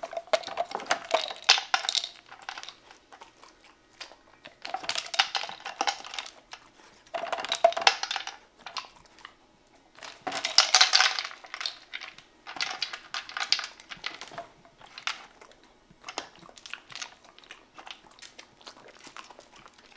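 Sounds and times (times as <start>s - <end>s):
kibble clattering in plastic feeder: 0.0s - 2.8s, 4.6s - 6.4s, 7.1s - 8.9s, 10.0s - 15.4s
dog chewing kibble: 0.0s - 19.9s.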